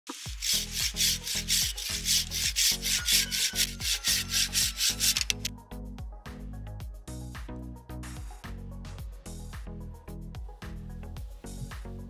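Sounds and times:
pruning saw cutting branch: 0.0 - 5.5.

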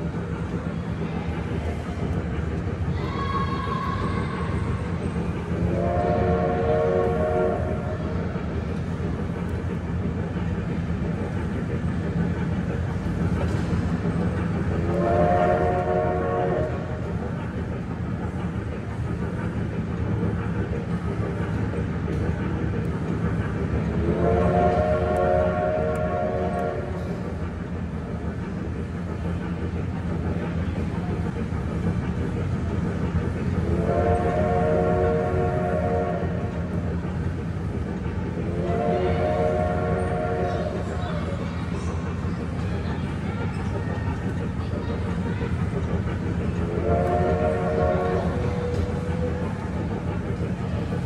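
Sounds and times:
train rumbling: 0.0 - 51.0
train whistle chord: 5.7 - 7.8, 14.9 - 16.8, 24.2 - 26.9, 33.8 - 36.3, 38.6 - 40.5, 46.8 - 48.4.

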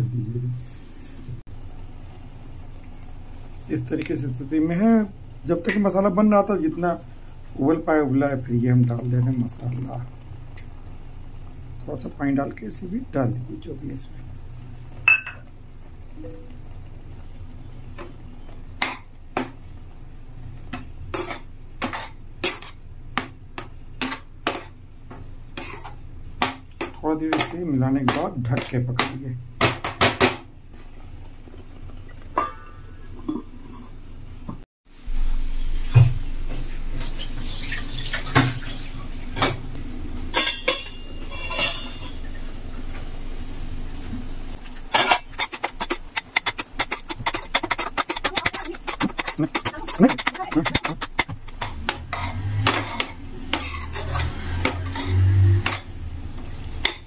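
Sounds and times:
low steady hum: 0.0 - 29.6
metal spatula scraping a pan: 21.1 - 22.8, 25.5 - 28.7, 40.3 - 42.3, 44.5 - 57.0.

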